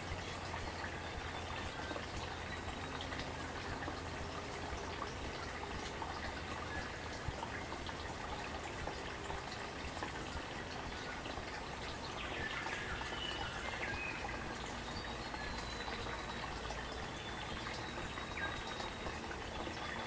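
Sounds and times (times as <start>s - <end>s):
stream babbling: 0.0s - 20.0s
birds chirping and whistling: 12.2s - 20.0s.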